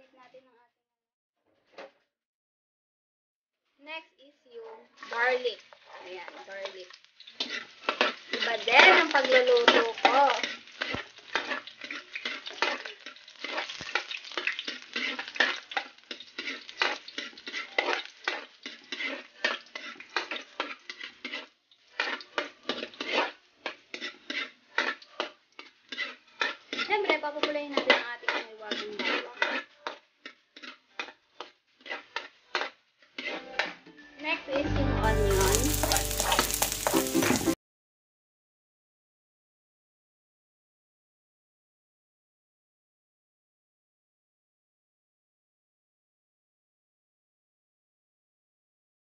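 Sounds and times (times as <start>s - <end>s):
stirring and scraping pan: 4.6s - 37.6s
garlic frying in oil: 4.9s - 37.6s.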